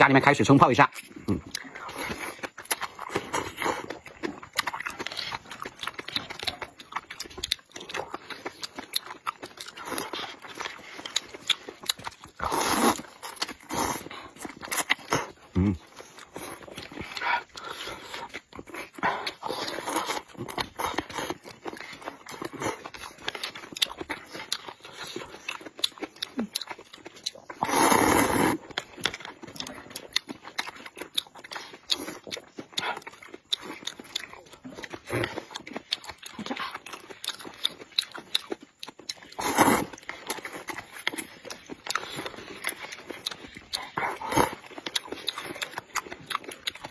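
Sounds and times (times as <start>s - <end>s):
people slurping noodles: 12.3s - 21.7s, 27.5s - 28.7s, 39.3s - 41.0s.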